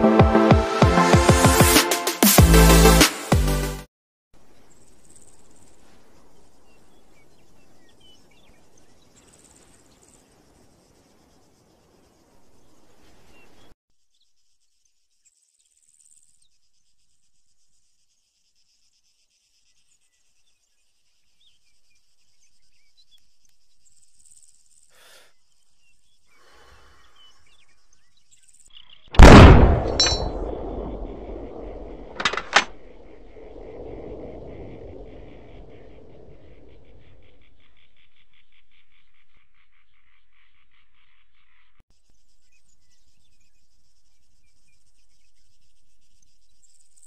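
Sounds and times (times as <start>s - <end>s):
faint insect chirping: 4.4s - 29.1s, 32.7s - 47.0s
loud gunshot with echo: 29.2s - 32.8s
short sharp cracks: 32.0s - 32.9s.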